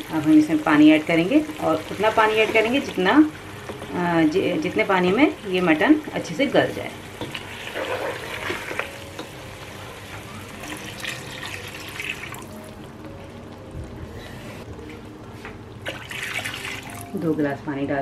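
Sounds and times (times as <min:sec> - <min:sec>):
water pouring into curry: 0:10.6 - 0:12.6.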